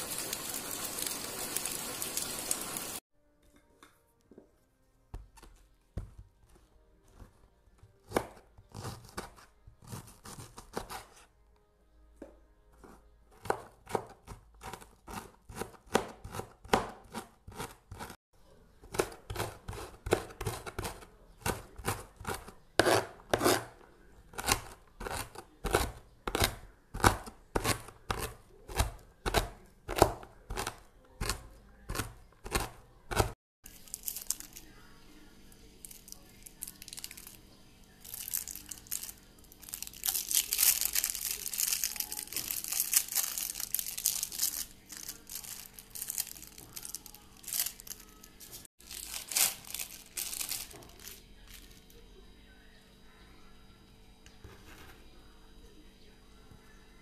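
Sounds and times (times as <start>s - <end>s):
knife chopping cabbage on a board: 8.0s - 11.2s, 13.3s - 18.1s, 18.8s - 33.4s.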